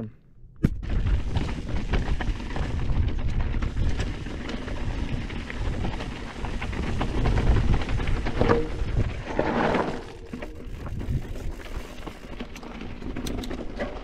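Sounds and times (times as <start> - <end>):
wind buffeting microphone: 0.8 - 9.4, 10.5 - 12.3
bike tyres and frame rattling: 0.8 - 14.0.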